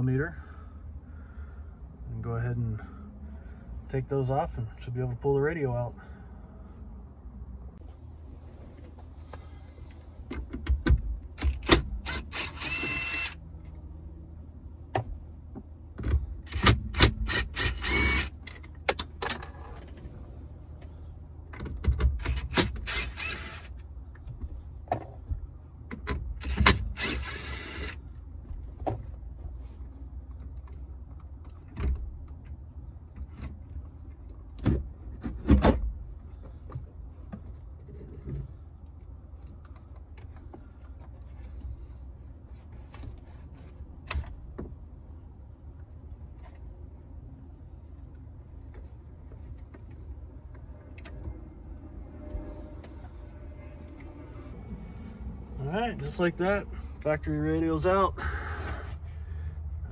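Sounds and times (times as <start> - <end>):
cordless drill running: 12.1 - 13.4, 17.6 - 18.3, 22.9 - 23.7, 27.0 - 28.0.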